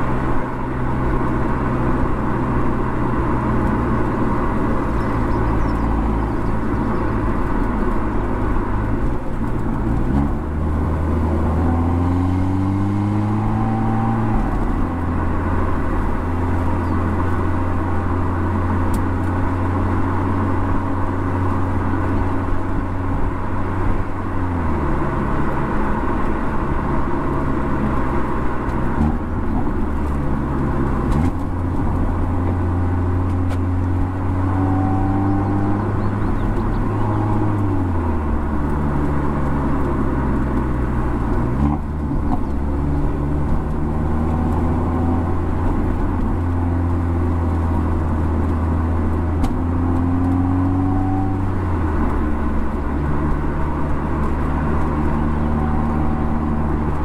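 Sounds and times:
car engine accelerating: 0.0 - 57.0.

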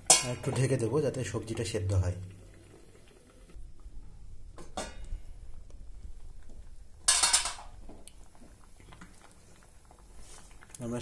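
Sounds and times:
metal kitchenware clattering: 0.0 - 0.7, 7.1 - 7.7
soup boiling and bubbling: 0.0 - 11.0.

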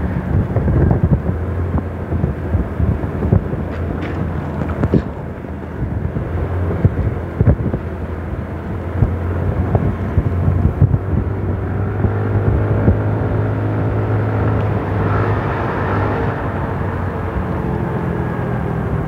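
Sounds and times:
road and wind noise: 0.0 - 19.0
vehicle engine running: 0.0 - 19.0
small bumps and knocks: 3.6 - 5.2.

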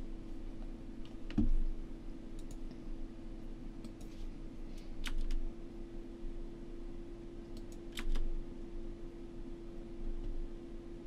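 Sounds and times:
steady low hum: 0.0 - 11.0
keyboard and mouse clicks: 2.4 - 2.7, 3.8 - 4.2, 5.0 - 5.4, 7.5 - 8.3.

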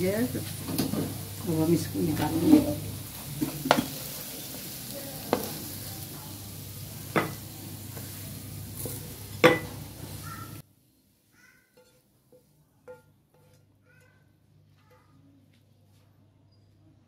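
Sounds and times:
spatula scraping a wok: 2.1 - 5.7, 7.0 - 10.6, 11.7 - 13.8.

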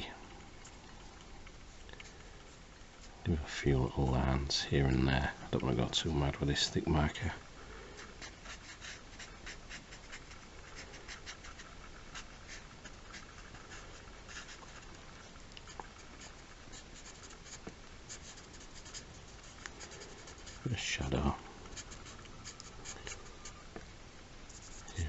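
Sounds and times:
marker scratching on paper: 8.0 - 14.8, 16.0 - 20.6, 21.7 - 23.6, 24.5 - 25.0.

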